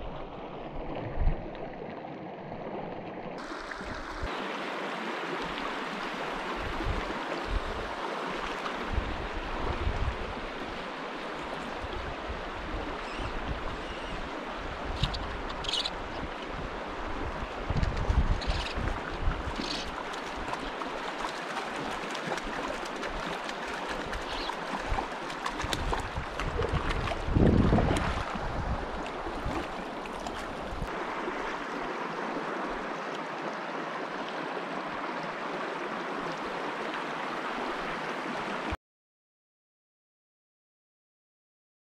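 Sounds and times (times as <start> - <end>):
creek water rushing over rocks: 0.0 - 38.8
wind buffeting microphone: 16.6 - 19.6, 24.1 - 29.6.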